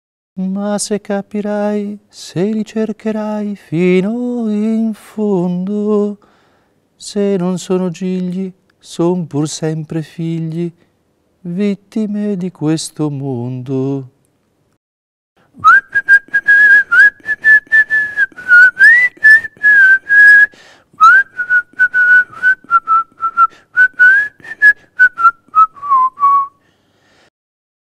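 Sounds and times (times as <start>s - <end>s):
person whistling a melody: 15.6s - 26.6s.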